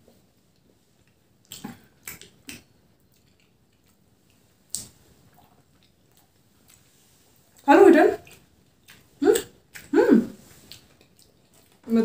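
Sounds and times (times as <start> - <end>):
chewing clicks: 1.0 - 6.8
wet lip smacks: 1.4 - 6.0.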